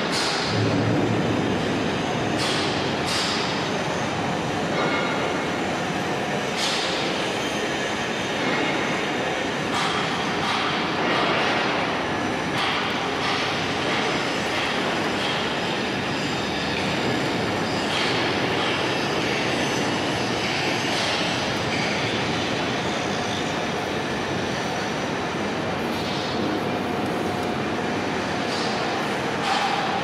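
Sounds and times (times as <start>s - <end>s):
machinery noise in workshop: 0.0s - 30.0s.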